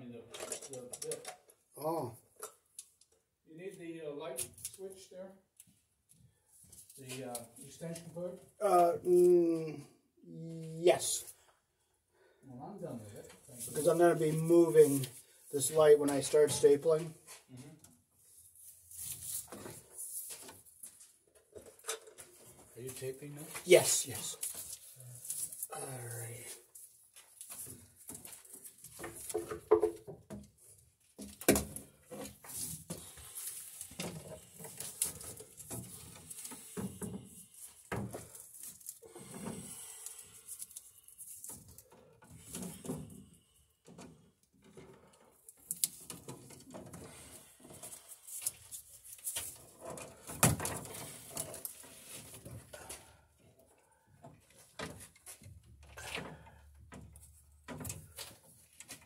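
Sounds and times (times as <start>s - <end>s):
electrical cable rustling: 30.6s - 43.1s.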